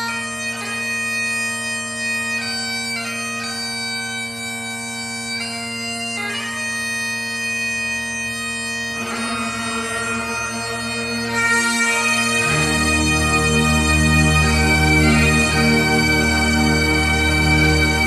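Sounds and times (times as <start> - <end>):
bagpipes playing slow melody: 0.0 - 18.0.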